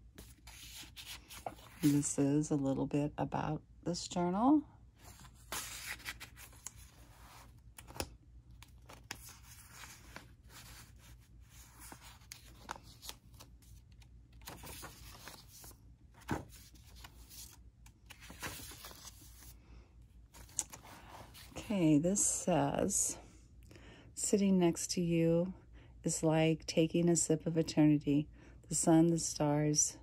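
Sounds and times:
paper pages rustling: 0.1 - 2.1, 5.0 - 19.6, 20.3 - 21.6.

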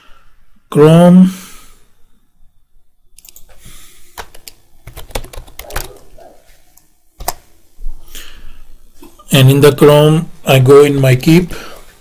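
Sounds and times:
keyboard keystrokes clicking: 4.2 - 6.0.

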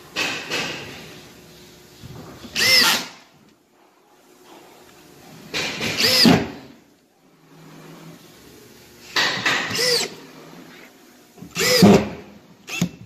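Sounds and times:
cordless drill driving screws: 2.6 - 3.1, 6.0 - 6.5, 9.5 - 10.1, 11.6 - 12.1, 12.7 - 13.0.

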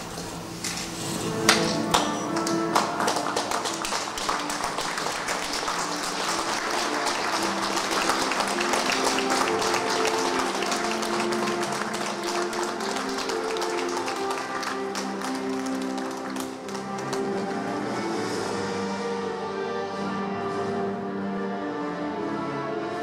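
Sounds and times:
music with held notes: 0.0 - 23.0
crowd applauding: 1.5 - 18.4.

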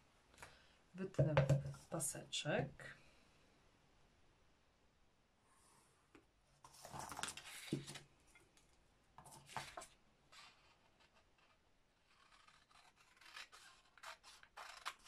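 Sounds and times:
scissors snipping paper: 12.0 - 15.0.

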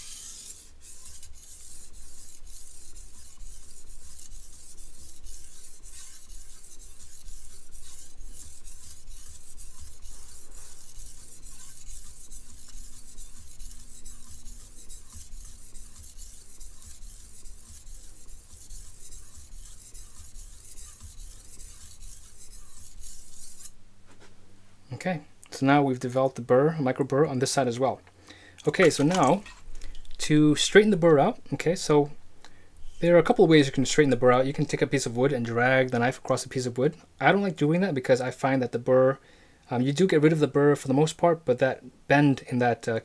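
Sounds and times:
knife scraping on whetstone: 0.0 - 23.8, 28.7 - 29.6.

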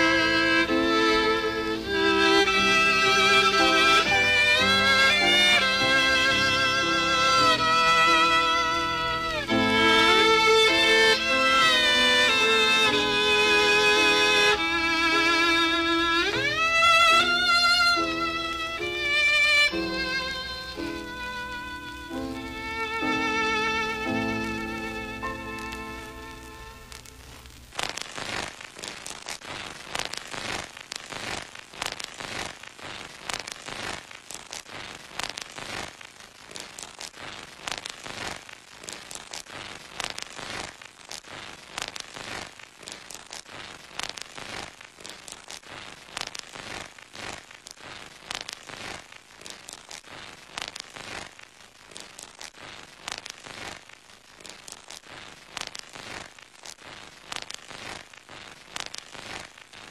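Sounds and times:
violin music: 0.0 - 27.4
dense crackling clicks and pops: 0.0 - 59.9.

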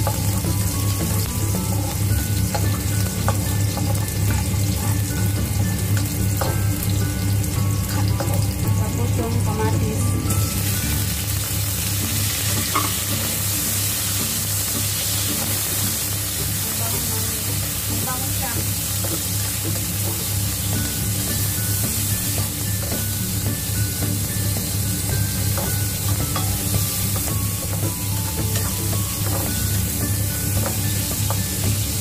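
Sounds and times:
oil sizzling in a wok: 0.0 - 32.0
spatula stirring in wok: 10.6 - 32.0.

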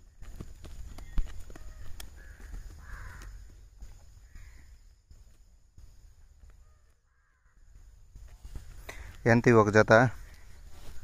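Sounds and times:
bird harsh calls: 1.0 - 3.5.

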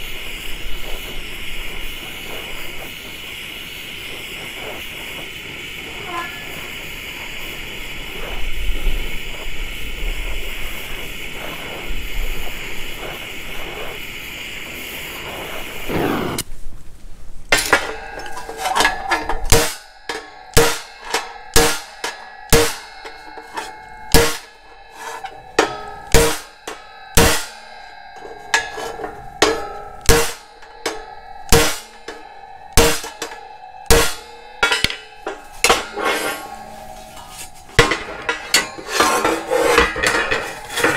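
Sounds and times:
torch hissing: 0.0 - 16.5, 17.5 - 40.9
hammer ringing on steel: 17.6 - 40.9.

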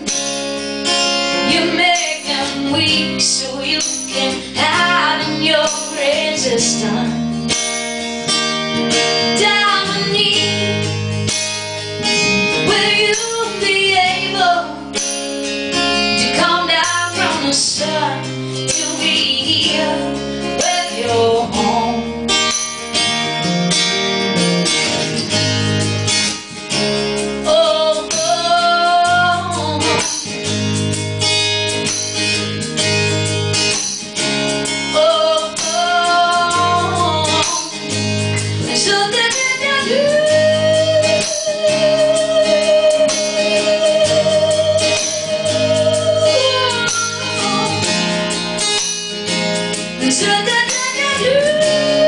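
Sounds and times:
strummed acoustic guitar: 0.0 - 52.0.

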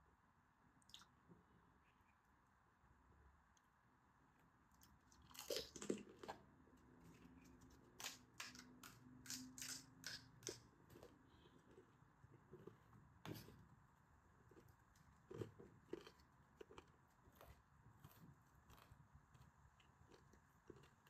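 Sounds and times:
crisp shells cracking and crunching: 7.4 - 10.7.

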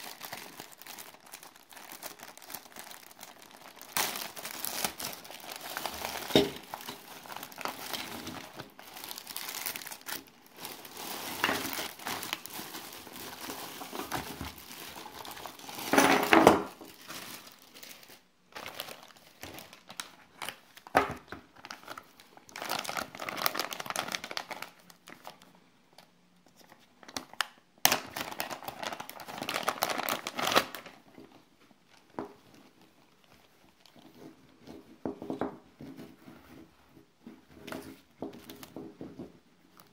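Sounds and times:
plastic bags crinkling: 0.0 - 25.5, 26.6 - 34.6.

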